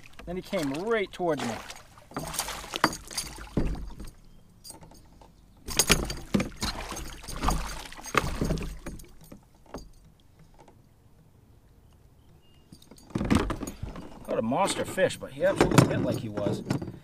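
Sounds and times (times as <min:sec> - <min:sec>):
fish splashing and thrashing: 0:00.0 - 0:04.2, 0:05.7 - 0:09.9
knocks against boat: 0:02.1 - 0:04.2, 0:05.7 - 0:09.9.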